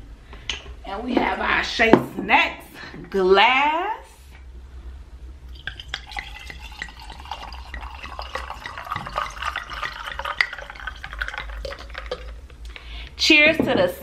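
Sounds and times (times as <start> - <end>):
wine pouring into a glass: 5.5 - 12.5.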